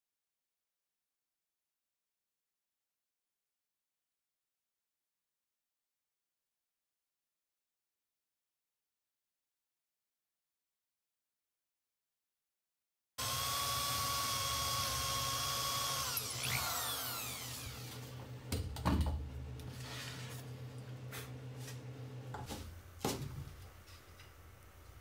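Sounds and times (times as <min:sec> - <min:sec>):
cordless drill motor whining: 0:13.2 - 0:18.4.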